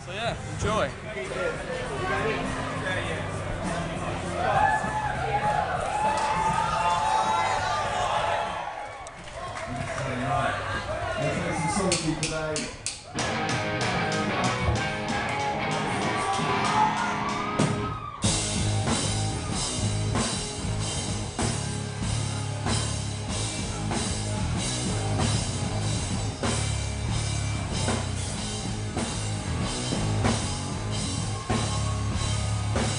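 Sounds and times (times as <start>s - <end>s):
rock band playing live: 13.1s - 32.9s.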